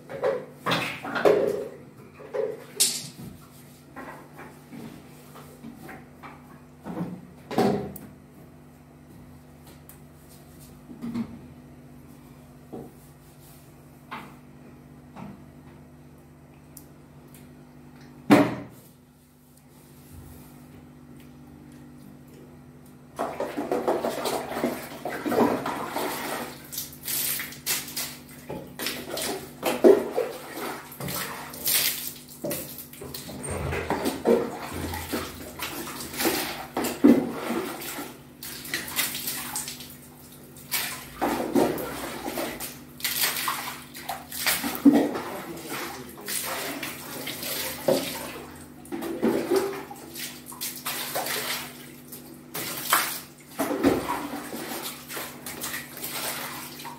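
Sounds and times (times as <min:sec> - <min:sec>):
water splashing and sloshing: 0:23.1 - 0:56.9.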